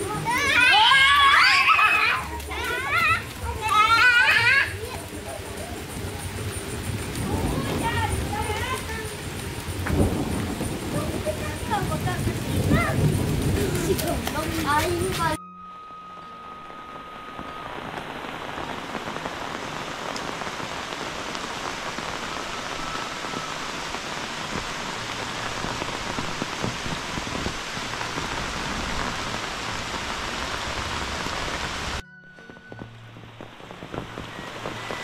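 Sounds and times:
steady rain falling: 0.0 - 35.0.

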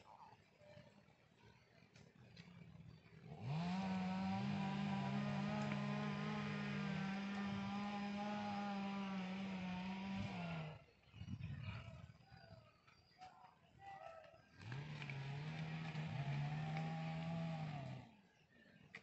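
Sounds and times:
engine running: 1.2 - 10.9, 14.6 - 18.2
lower engine note: 3.2 - 10.8, 14.6 - 18.2.

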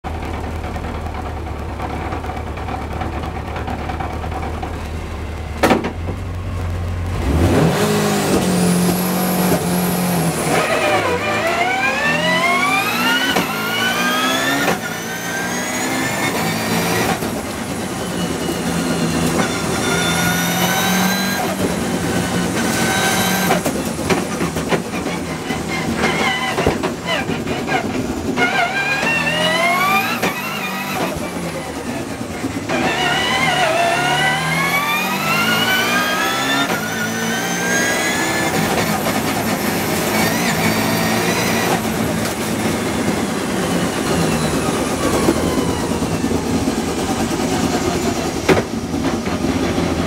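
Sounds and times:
car engine accelerating: 0.1 - 50.0.

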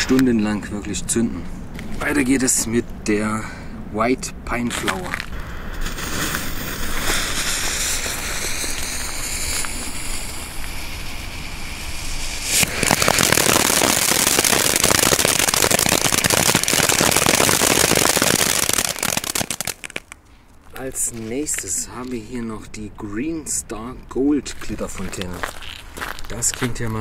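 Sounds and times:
firework fuse hissing: 5.3 - 20.0
fountain firework spraying sparks: 5.7 - 20.2.

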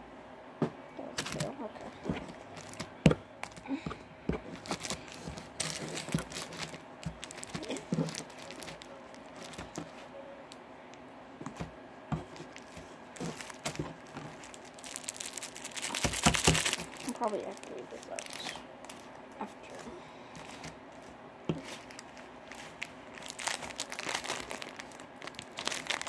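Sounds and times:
plastic crinkling: 1.0 - 10.1, 12.2 - 26.0.

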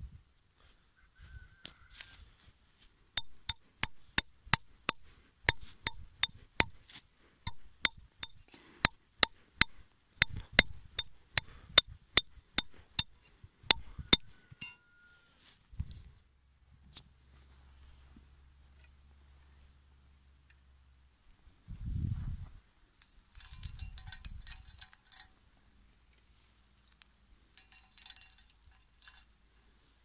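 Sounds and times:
hammer striking metal stake: 3.2 - 6.8, 7.5 - 14.8.

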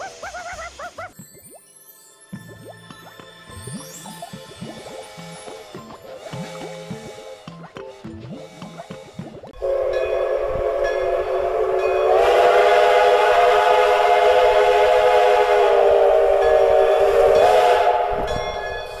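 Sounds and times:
steam locomotive chime whistle: 9.6 - 19.0.

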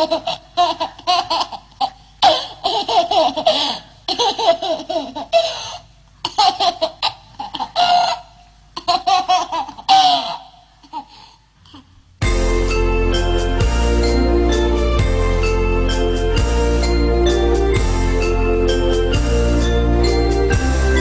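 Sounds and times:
baby laughing: 0.0 - 11.2.

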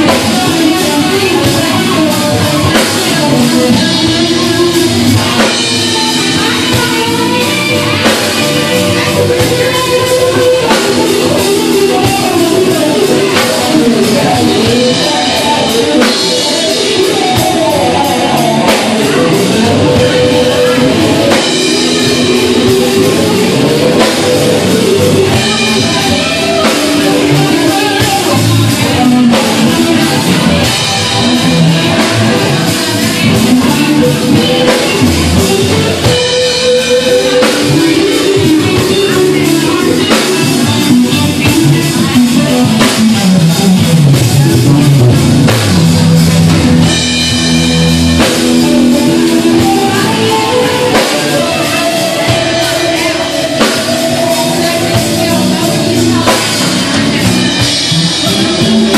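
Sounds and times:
drum kit: 0.0 - 58.9
electric guitar: 0.0 - 58.9.

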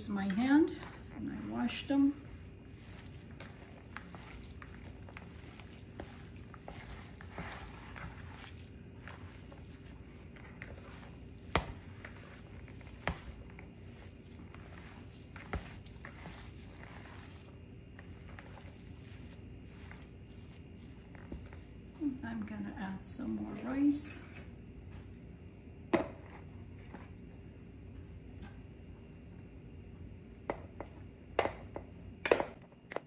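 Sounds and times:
steady hum: 0.0 - 32.9
hands squishing meat mixture: 1.3 - 21.6.

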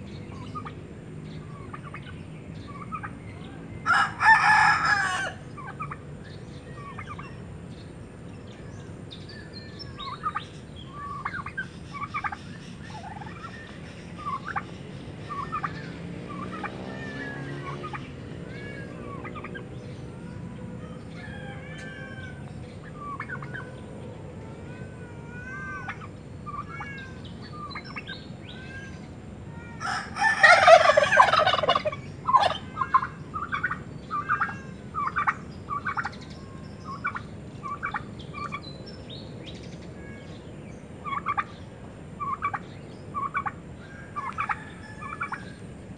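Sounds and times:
loud fowl call: 3.8 - 6.0, 29.8 - 36.1.

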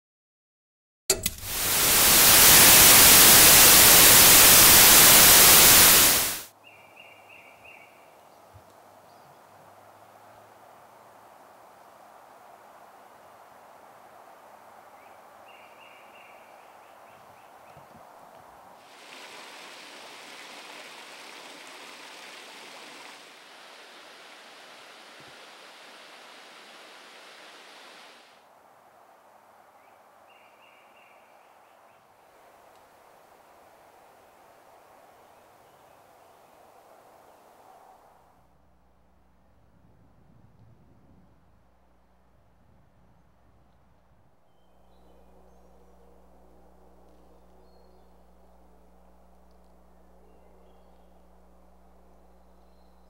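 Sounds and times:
tv static hiss: 1.1 - 6.5, 18.6 - 28.4
creek water running over rocks: 1.2 - 6.5, 18.8 - 28.4
faint outdoor ambience: 1.2 - 53.0.

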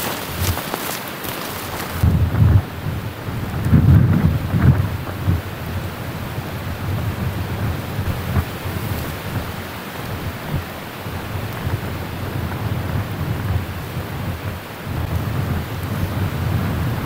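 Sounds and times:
gusty wind on microphone: 0.0 - 17.0.

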